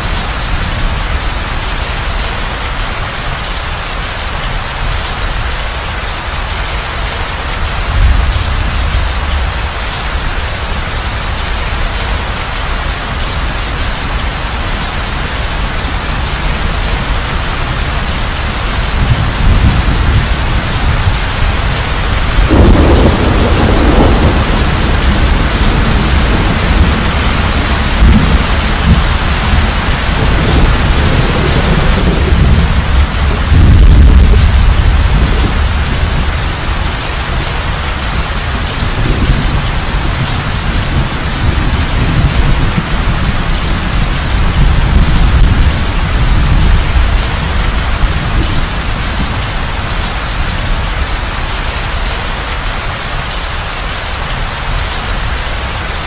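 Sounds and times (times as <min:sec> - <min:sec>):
heavy rain: 0:00.0 - 0:56.0
rolling thunder: 0:16.4 - 0:37.0.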